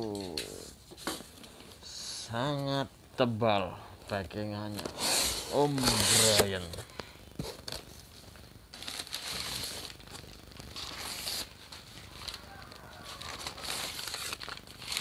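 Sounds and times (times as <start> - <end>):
packing material rustling: 4.7 - 6.8, 8.7 - 15.0.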